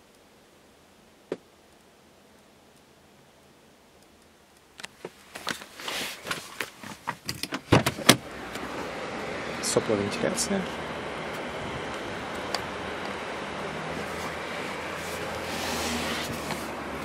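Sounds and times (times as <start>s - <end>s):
rustling on leather seat: 5.0s - 7.2s, 13.9s - 17.0s.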